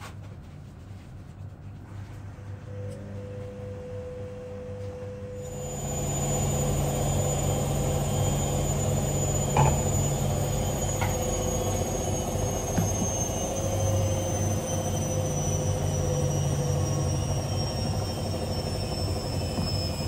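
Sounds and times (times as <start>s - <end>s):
high thin whine: 5.4s - 20.0s.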